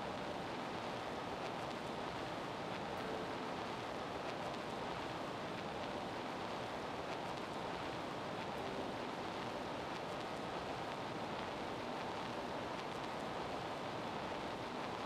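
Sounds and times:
faint ticks: 1.4s - 13.4s.

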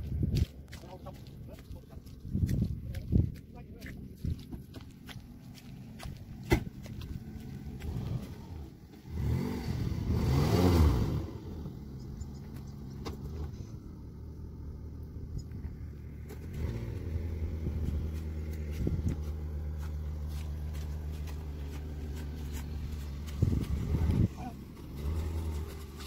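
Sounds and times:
engine revving and idling: 4.1s - 26.0s.

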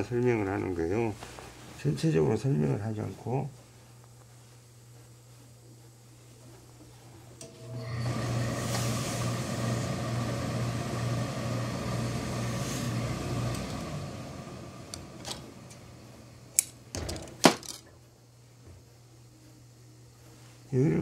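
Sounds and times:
steam iron hissing: 6.9s - 16.5s.

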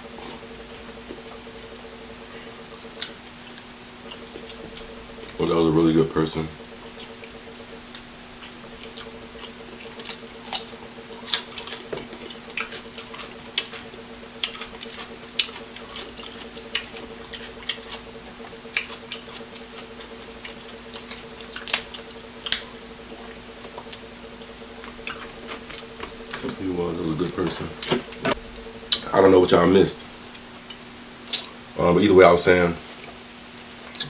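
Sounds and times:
low hum: 0.0s - 32.0s
chewing and shellfish clicks: 6.4s - 26.6s.

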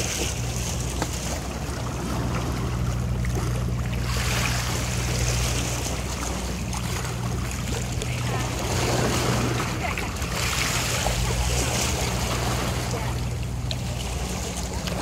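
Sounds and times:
boat motor droning: 0.0s - 15.0s
rush of wind and water: 0.0s - 15.0s.

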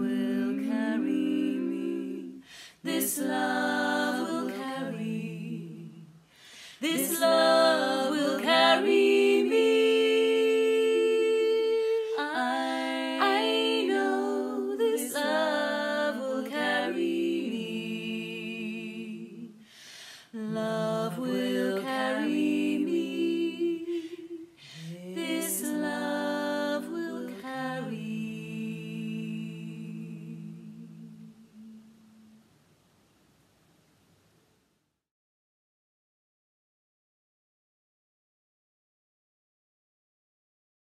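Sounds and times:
woman singing a cappella harmony: 0.0s - 32.4s.

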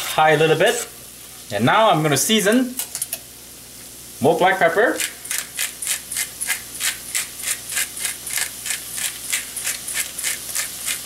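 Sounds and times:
pepper mill grinding: 4.9s - 11.0s.

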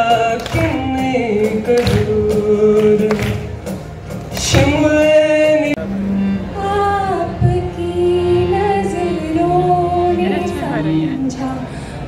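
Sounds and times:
cajon drum hits: 0.3s - 5.2s.

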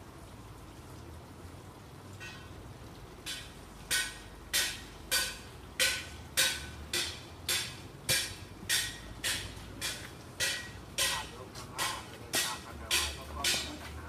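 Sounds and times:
rhythmic rattling clatter: 3.9s - 14.0s.

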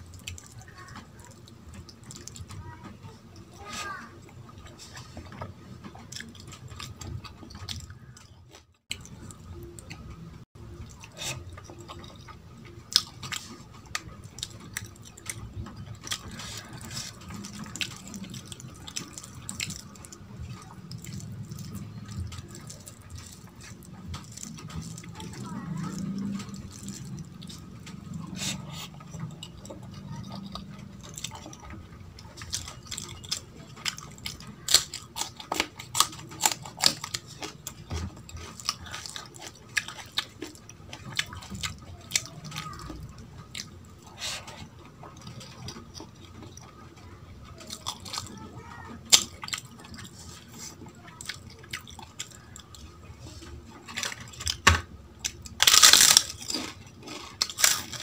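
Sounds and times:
wet chewing: 0.0s - 58.0s
loud crunching: 53.7s - 58.0s.

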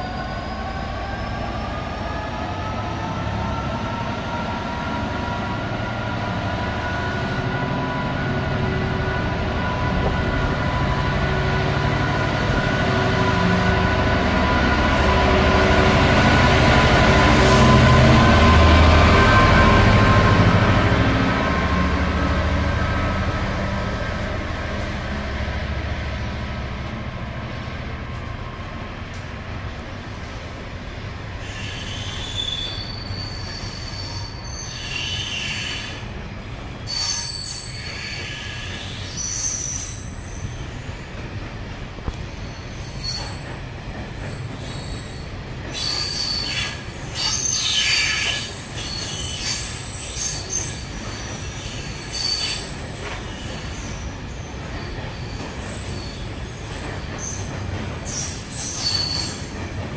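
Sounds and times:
train wheels squealing: 0.0s - 4.8s, 31.4s - 41.1s, 41.9s - 59.9s
train rumbling past: 0.0s - 59.9s.

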